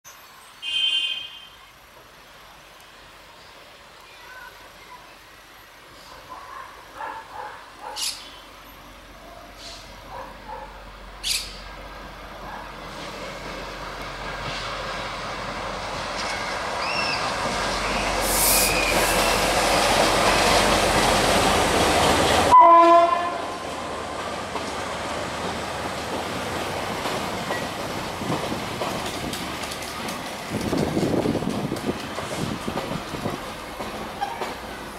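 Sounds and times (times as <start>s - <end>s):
passenger train rumbling past: 1.6s - 34.9s
high wheel squeal: 16.3s - 19.5s
train horn note: 22.5s - 23.6s.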